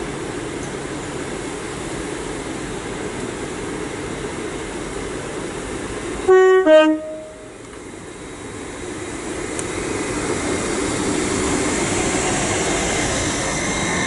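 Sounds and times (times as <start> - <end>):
train running hum: 0.0 - 14.0
two-note train horn: 6.3 - 7.5.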